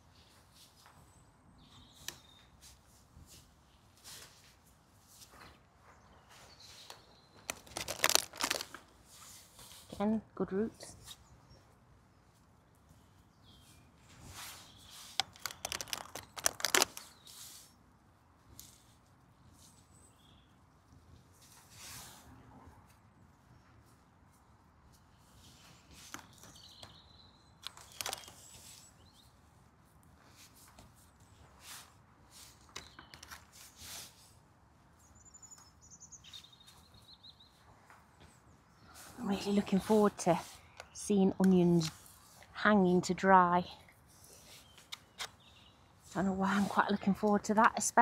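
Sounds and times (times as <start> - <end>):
gloved hands rustling in soil: 0.0 - 11.6, 12.2 - 20.5, 22.9 - 42.5, 44.0 - 47.3
small bird singing: 1.0 - 2.6, 5.9 - 8.6, 11.0 - 17.6, 19.4 - 20.6, 25.2 - 29.4, 35.0 - 41.9, 44.4 - 46.0
plastic tray crackling and clicking: 7.4 - 8.8, 15.2 - 17.0, 27.6 - 28.4
gloved hands scraping soil: 14.3 - 17.8, 39.2 - 42.5.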